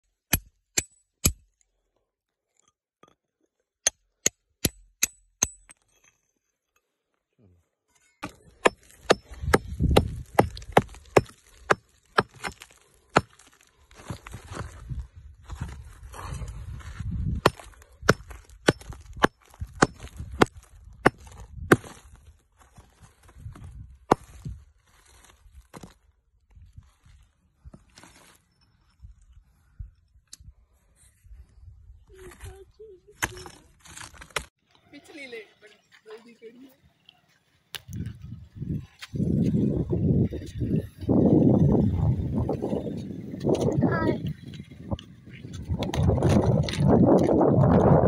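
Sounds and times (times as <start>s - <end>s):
hammer striking steel chisel: 0.3s - 1.5s, 3.8s - 6.1s
hammer striking rock: 3.8s - 5.8s, 8.2s - 13.5s, 17.4s - 22.0s
scraping and crumbling of rock: 8.1s - 28.7s, 43.4s - 48.0s.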